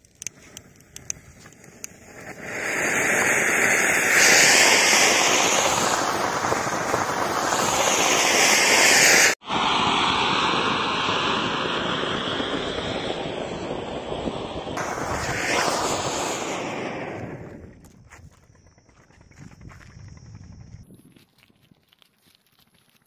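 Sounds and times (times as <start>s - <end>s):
firework fountains hissing: 0.2s - 17.6s.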